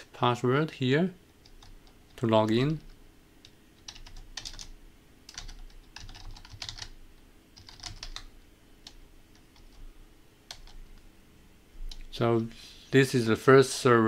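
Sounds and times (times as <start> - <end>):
computer keyboard typing: 1.4 - 7.0, 7.6 - 11.0.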